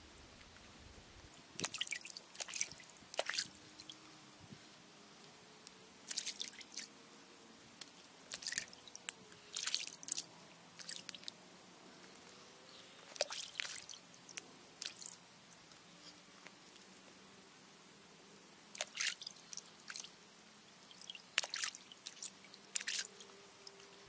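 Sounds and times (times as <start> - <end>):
water dripping and splashing: 1.6 - 4.1, 6.0 - 6.9, 7.8 - 11.4, 13.1 - 15.8, 18.7 - 23.9.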